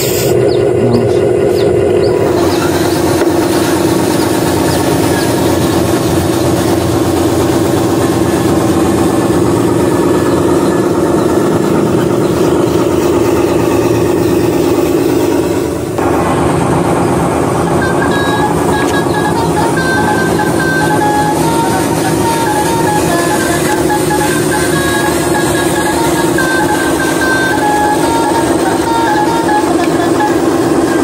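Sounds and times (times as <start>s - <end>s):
simulated truck engine drone: 0.0s - 31.0s.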